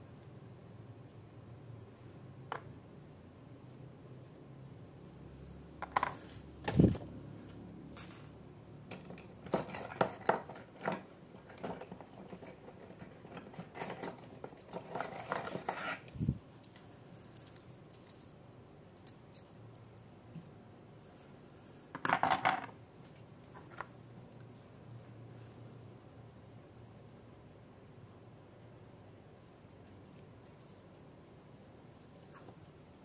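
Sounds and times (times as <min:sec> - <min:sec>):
small metal parts clinking: 0:16.6 - 0:20.2.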